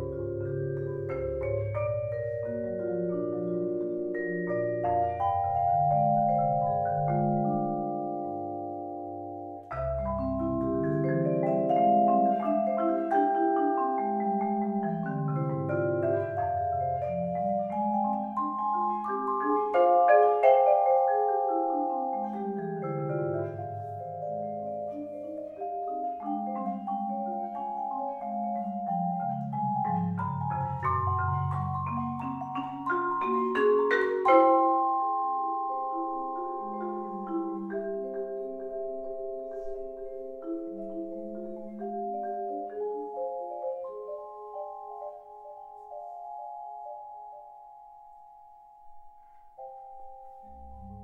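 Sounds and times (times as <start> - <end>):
low marimba notes: 0.0 - 51.0
vibraphone chords: 0.0 - 51.0.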